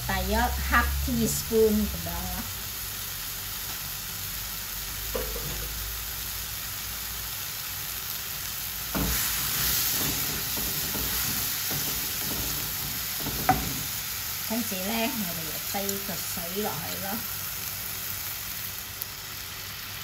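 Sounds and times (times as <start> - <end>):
mushrooms sizzling in oil: 0.0 - 20.0
spatula stirring: 8.9 - 14.0
spatula knocking against pan: 10.0 - 13.9.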